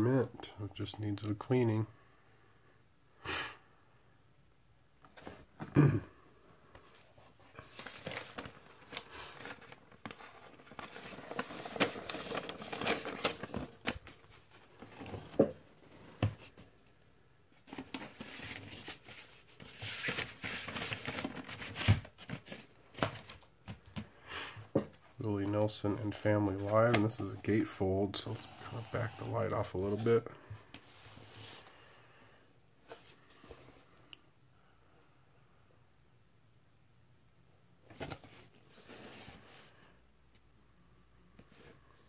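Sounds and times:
paper and cardboard rustling: 0:06.9 - 0:16.7, 0:17.6 - 0:24.1, 0:37.9 - 0:39.8.

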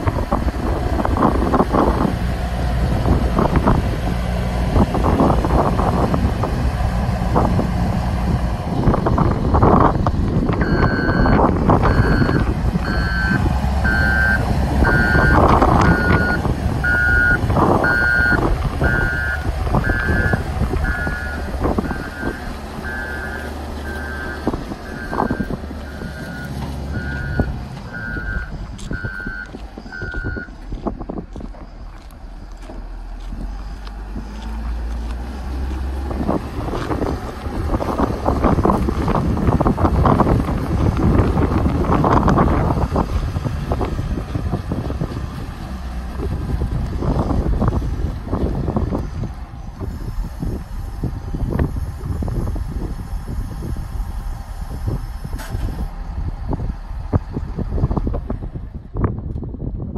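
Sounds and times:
diesel engine running: 0:00.0 - 0:59.9
backup alarm beeping: 0:10.6 - 0:30.6.

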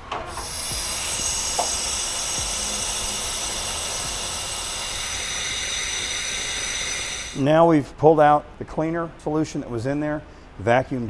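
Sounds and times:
vacuum sucking liquid: 0:00.3 - 0:07.5.

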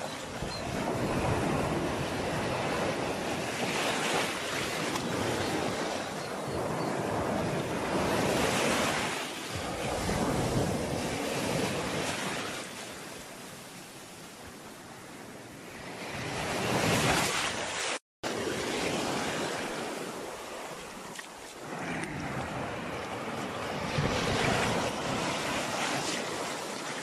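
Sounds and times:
sea waves washing onto shore: 0:16.0 - 0:27.0.

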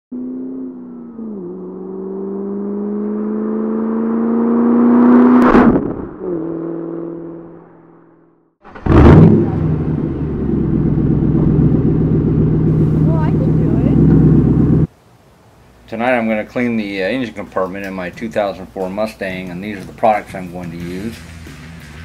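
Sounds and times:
car engine accelerating past: 0:00.2 - 0:07.5, 0:08.7 - 0:14.9
deep engine rumble: 0:08.6 - 0:14.9
sudden loud burst: 0:08.6 - 0:14.9.

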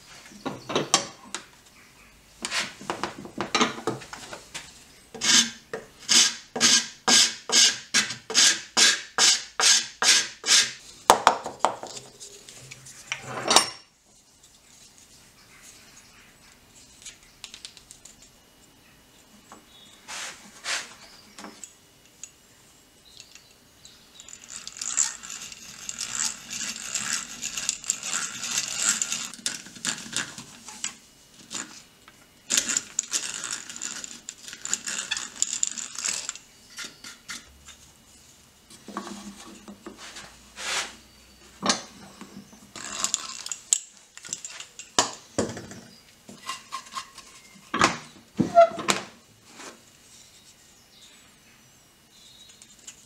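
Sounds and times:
drill gears clicking: 0:24.2 - 0:29.4
hand drill boring into wood: 0:24.3 - 0:29.4.

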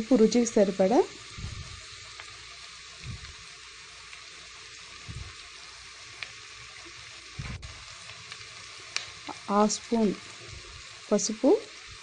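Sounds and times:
onions sizzling in hot oil: 0:00.0 - 0:12.0
soft low thumps: 0:01.4 - 0:01.8, 0:03.0 - 0:03.4, 0:05.0 - 0:05.4, 0:07.4 - 0:07.7.

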